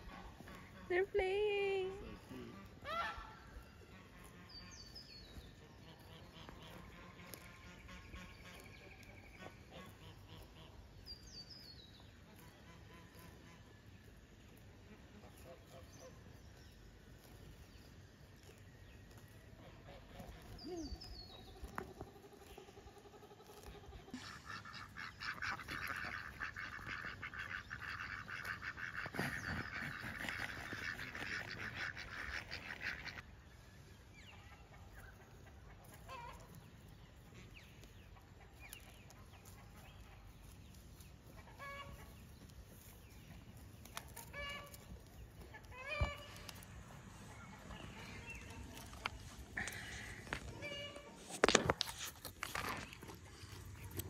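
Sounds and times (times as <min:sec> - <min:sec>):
ducks quacking: 0:00.0 - 0:04.9, 0:05.6 - 0:10.9, 0:23.4 - 0:33.3, 0:41.2 - 0:51.7.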